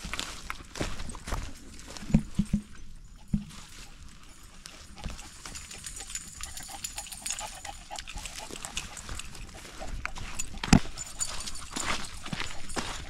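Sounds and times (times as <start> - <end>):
footsteps on muddy trail: 0.0 - 13.0
dog sounds: 3.2 - 13.0.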